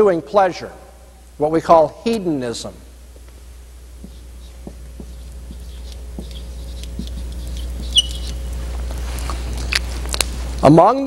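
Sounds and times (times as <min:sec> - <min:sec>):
steady low hum: 0:00.0 - 0:11.0
marker scraping on whiteboard: 0:04.0 - 0:08.5
marker squeak: 0:04.1 - 0:08.6.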